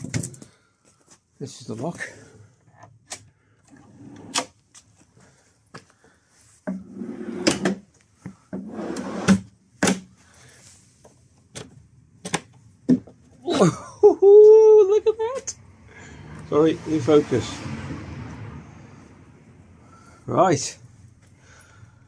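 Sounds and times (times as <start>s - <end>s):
drawer sliding on metal runners: 3.7s - 4.5s, 6.7s - 7.8s, 8.6s - 9.5s.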